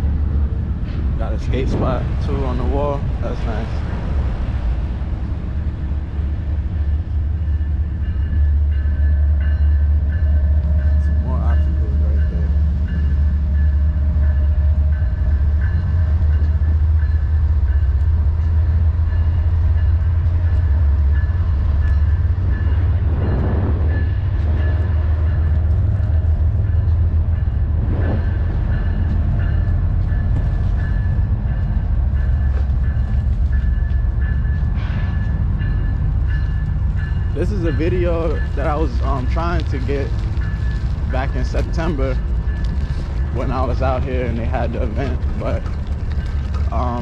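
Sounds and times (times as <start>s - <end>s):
wind rumble on microphone: 18.2s - 47.0s
light rattling over pavement: 36.4s - 47.0s.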